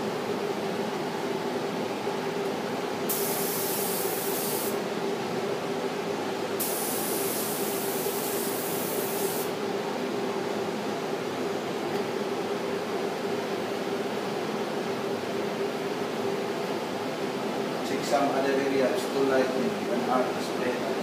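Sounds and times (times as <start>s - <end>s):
fan hum: 0.0s - 21.0s
spray gun hissing: 3.1s - 4.8s, 6.6s - 9.5s.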